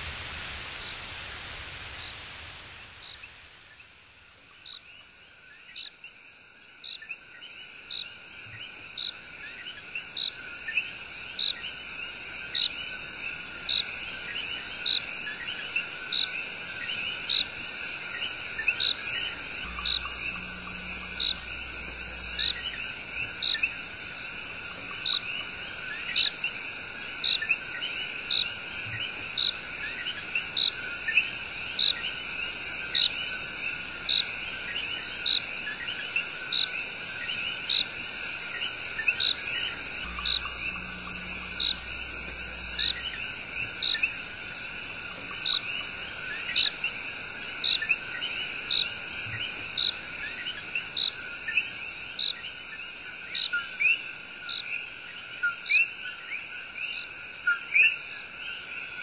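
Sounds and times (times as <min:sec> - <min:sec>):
low rumble: 0:00.0 - 0:04.2
high insect drone: 0:00.0 - 0:59.0.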